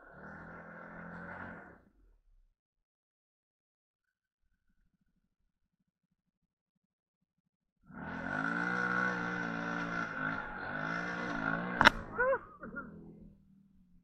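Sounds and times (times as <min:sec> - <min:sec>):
quad engine running: 0:00.0 - 0:01.8, 0:07.9 - 0:14.0
sharp click: 0:11.8 - 0:12.2.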